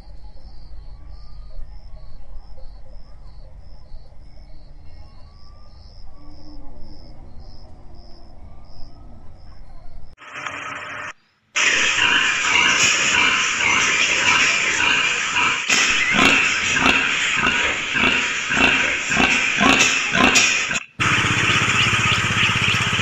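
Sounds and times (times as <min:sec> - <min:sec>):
crickets chirping: 0:00.0 - 0:10.2
chickens clucking: 0:11.6 - 0:23.0
rushing noise: 0:11.6 - 0:23.0.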